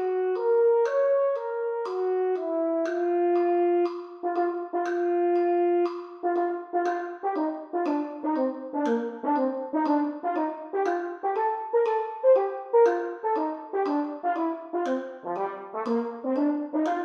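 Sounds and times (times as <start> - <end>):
solo french horn playing: 0.0 - 12.4.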